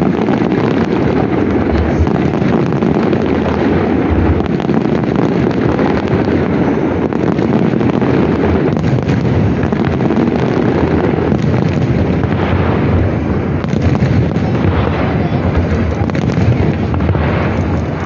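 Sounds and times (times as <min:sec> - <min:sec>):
fireworks bangs and crackles: 0:00.0 - 0:18.0
heavy low rumble: 0:00.9 - 0:04.6, 0:12.0 - 0:18.0.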